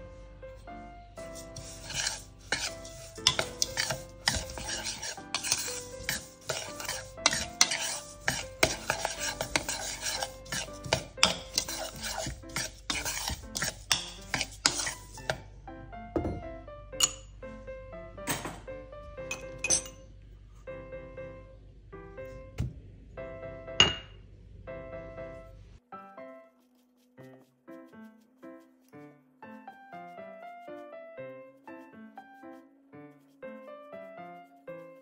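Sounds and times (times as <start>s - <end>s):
utensil scraping mixing bowl: 1.2s - 15.5s.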